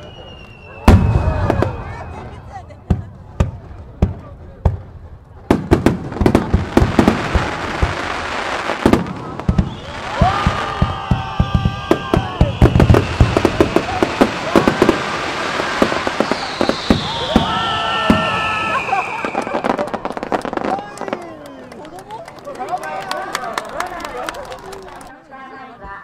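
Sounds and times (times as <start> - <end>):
rising fireworks whistles: 0.0 - 2.8, 5.5 - 21.7
fireworks bangs: 0.0 - 21.4.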